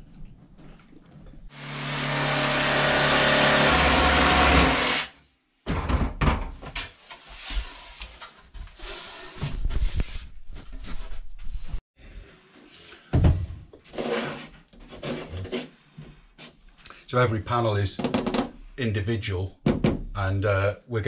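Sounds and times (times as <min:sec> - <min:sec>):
circular saw cutting plywood: 0:01.5 - 0:05.2.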